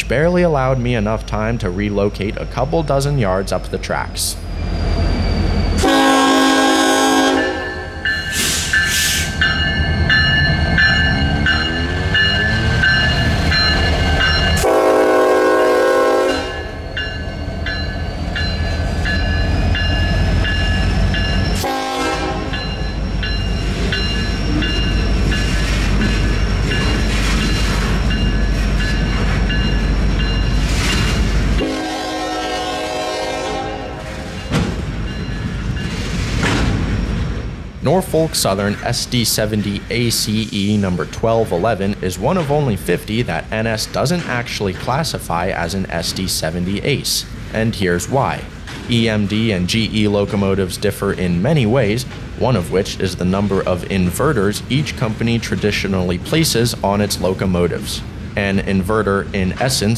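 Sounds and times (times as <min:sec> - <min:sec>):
locomotive engine rumbling: 0:00.0 - 0:59.9
locomotive air horn blasts: 0:05.8 - 0:09.2, 0:14.6 - 0:16.7, 0:21.6 - 0:22.6, 0:31.6 - 0:34.2.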